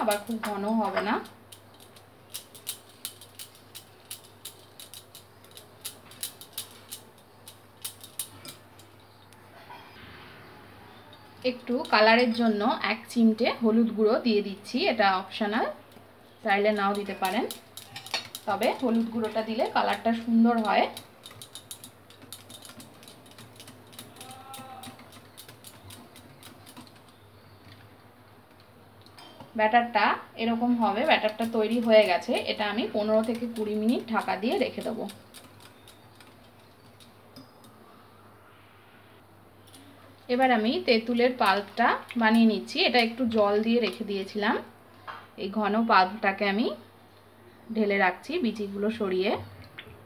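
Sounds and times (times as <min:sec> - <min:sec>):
whisk clicking against bowl: 0:16.7 - 0:27.2, 0:30.8 - 0:37.6.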